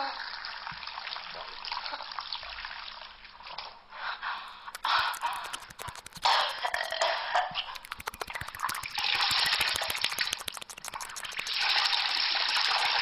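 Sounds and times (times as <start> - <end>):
crackling clicks: 4.7 - 13.0.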